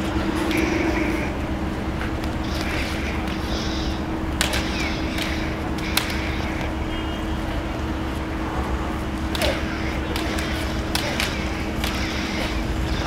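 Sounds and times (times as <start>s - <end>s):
city traffic rumble: 0.0s - 13.0s
plastic toy swords clacking: 2.4s - 6.8s, 9.3s - 13.0s.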